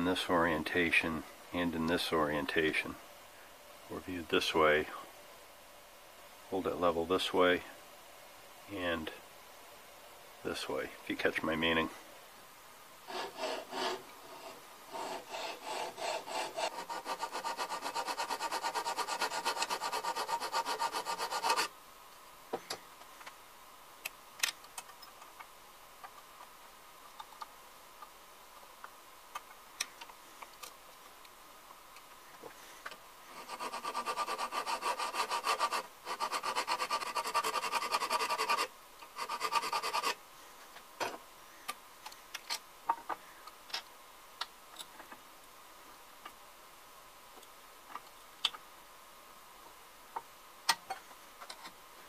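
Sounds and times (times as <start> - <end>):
hand file rasping on steel: 13.1 - 21.7, 33.4 - 40.2.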